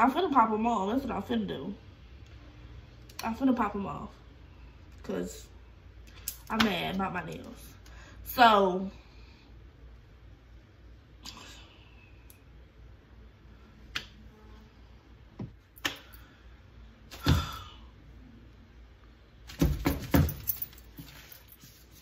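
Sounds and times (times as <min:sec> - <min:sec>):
keys jangling: 0:20.0 - 0:21.8.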